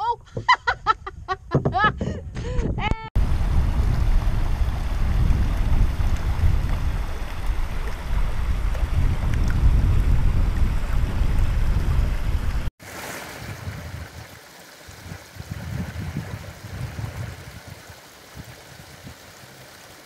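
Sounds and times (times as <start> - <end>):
wind rumbling on microphone: 0.7 - 12.7, 13.4 - 19.3
low gusts of wind: 0.7 - 19.5
stream trickling over rocks: 3.2 - 11.8, 12.8 - 20.0.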